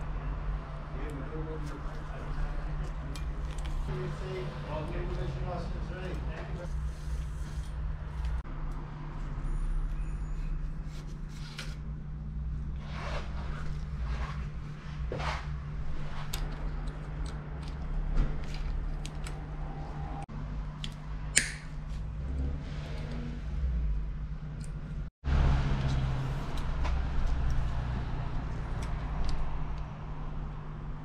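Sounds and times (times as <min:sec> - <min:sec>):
scraping and rustling of cable: 0:01.0 - 0:08.4, 0:12.7 - 0:20.3.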